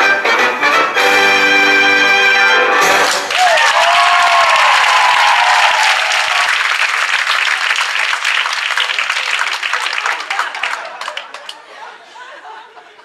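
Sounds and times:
audience applauding: 0:02.9 - 0:11.7
person cheering: 0:03.3 - 0:06.6.

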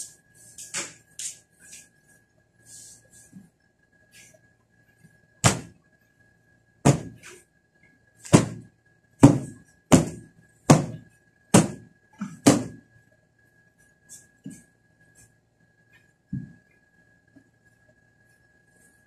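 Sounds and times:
cushions being beaten: 0:05.4 - 0:05.8, 0:06.8 - 0:07.2, 0:08.3 - 0:12.8.

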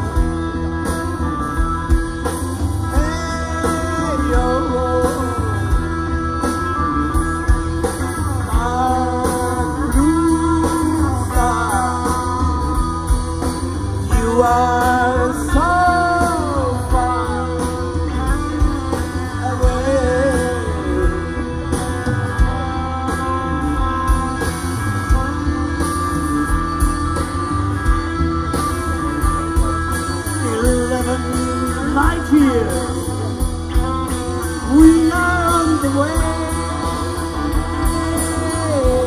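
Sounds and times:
psychedelic rock band playing: 0:00.0 - 0:39.0.

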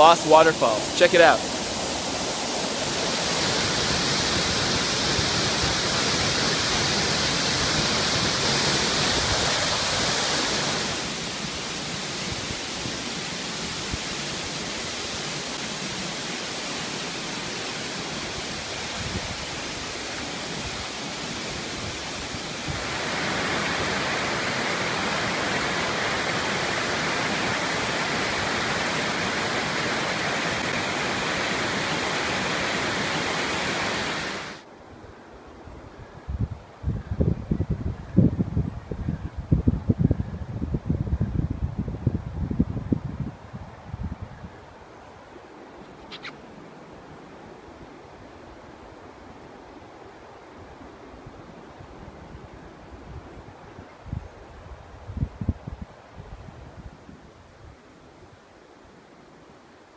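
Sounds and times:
waterfall rushing: 0:00.0 - 0:34.6
stream running over rocks: 0:00.0 - 0:34.7.

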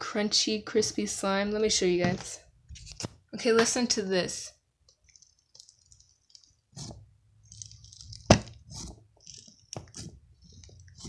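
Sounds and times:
slime crackling and popping: 0:05.0 - 0:11.0.

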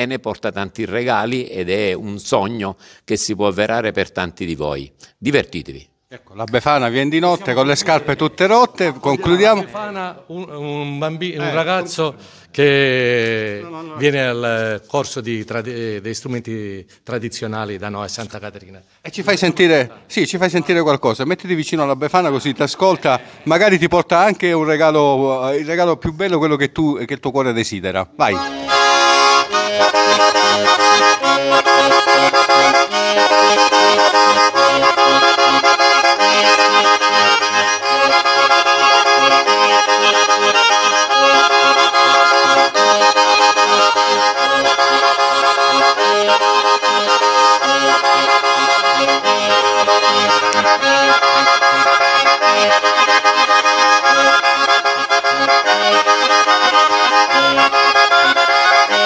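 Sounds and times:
button accordion melody: 0:06.8 - 0:10.0, 0:11.3 - 0:12.4, 0:28.2 - 0:59.0.

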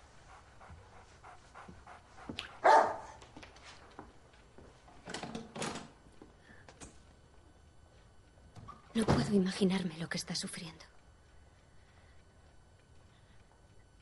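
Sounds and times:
dog barking indoors: 0:00.9 - 0:03.6.

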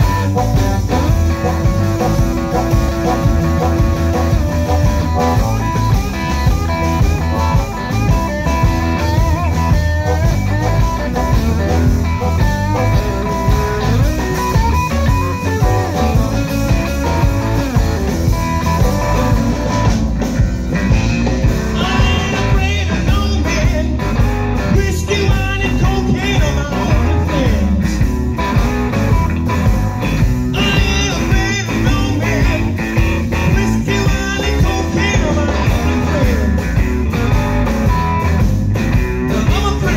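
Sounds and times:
electric blues band playing: 0:00.0 - 0:39.9
harmonica: 0:00.0 - 0:39.9.

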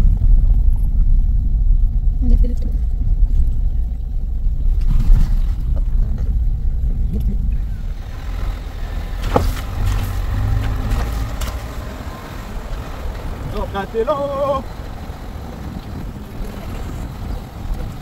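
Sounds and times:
vehicle engine and road noise: 0:00.0 - 0:18.0
knocks over bumps: 0:07.6 - 0:18.0.

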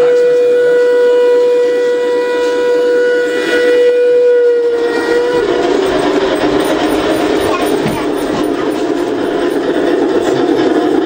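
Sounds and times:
model train motor whine: 0:00.0 - 0:11.0
wheels rumbling on track: 0:04.7 - 0:11.0.

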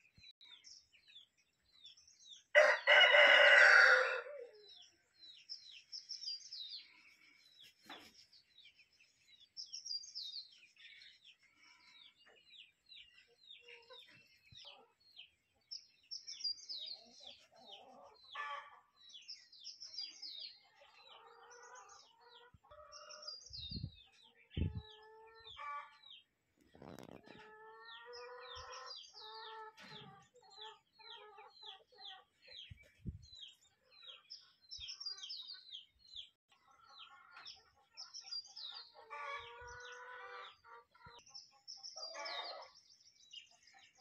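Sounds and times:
rooster crowing: 0:02.6 - 0:04.5
hens clucking: 0:24.2 - 0:32.7, 0:38.9 - 0:41.2.

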